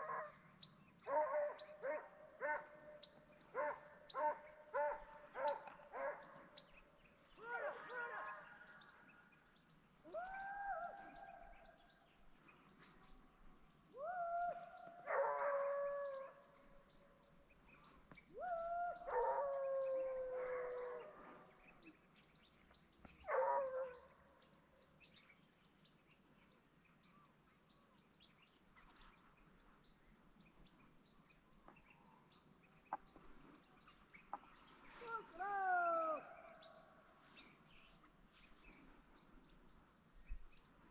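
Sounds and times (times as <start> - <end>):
distant hounds baying: 1.0 - 6.5, 7.4 - 8.8, 18.4 - 21.5.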